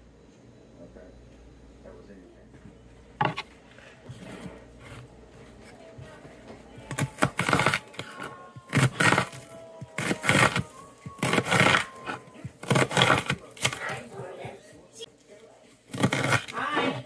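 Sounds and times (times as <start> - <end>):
knife knocking cutting board: 3.2 - 3.4
knife crunching through onion: 6.9 - 14.2, 15.8 - 17.0.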